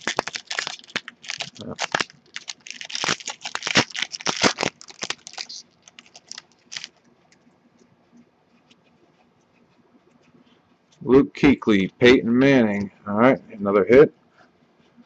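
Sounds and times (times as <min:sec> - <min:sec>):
foil wrapper crinkling: 0:00.0 - 0:07.0.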